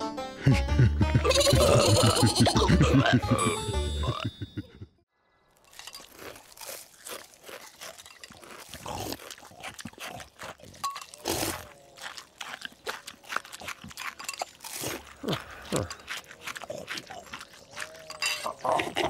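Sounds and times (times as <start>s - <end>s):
chewing and crunching cereal: 5.5s - 19.0s.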